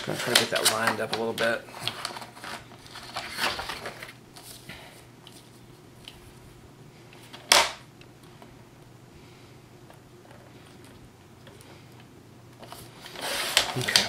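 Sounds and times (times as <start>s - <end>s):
paper rustling: 0.0s - 4.7s, 12.6s - 14.0s.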